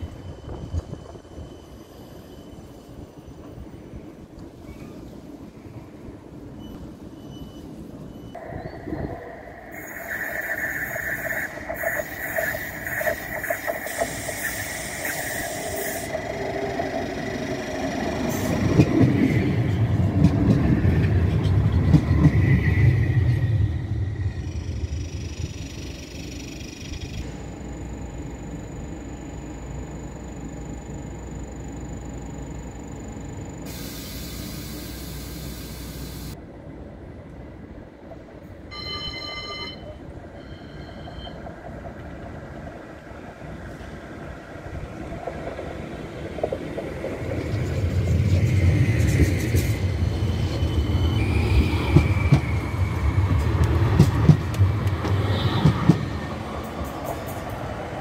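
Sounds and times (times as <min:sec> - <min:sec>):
tram wheels rumbling on rails: 0:00.0 - 0:58.0
short ringing tone: 0:38.7 - 0:41.4.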